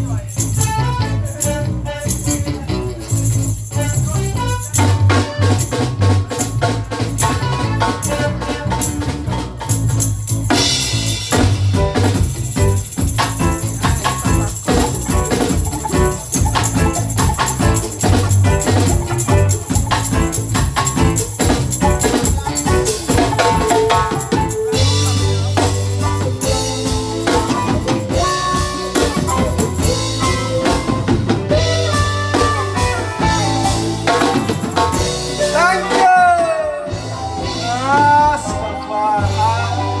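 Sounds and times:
reggae band playing: 0:00.0 - 0:40.0
lead singer singing: 0:34.8 - 0:40.0.

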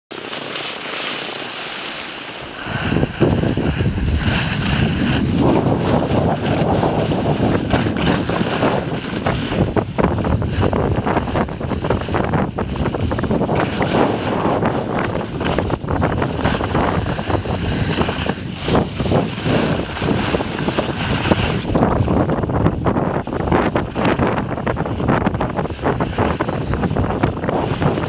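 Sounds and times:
skis scraping on snow: 0:00.1 - 0:28.0
wind buffeting microphone: 0:02.4 - 0:28.0
loud low rumble: 0:02.6 - 0:07.7.

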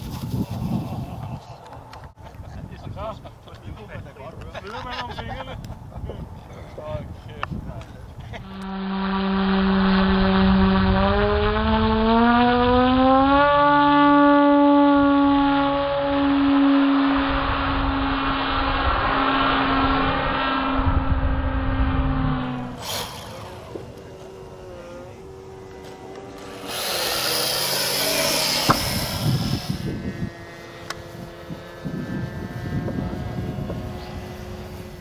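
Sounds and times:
model airplane motor droning: 0:08.3 - 0:35.0.

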